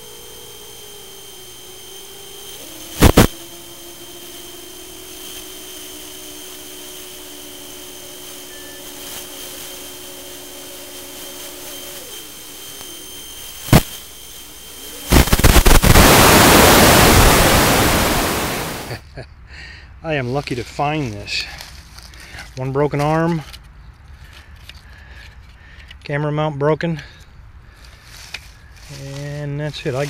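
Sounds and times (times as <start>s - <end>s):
drone motors whining: 0.0s - 19.0s
sharp loud cracks: 3.0s - 3.4s, 13.6s - 14.0s, 15.1s - 18.9s.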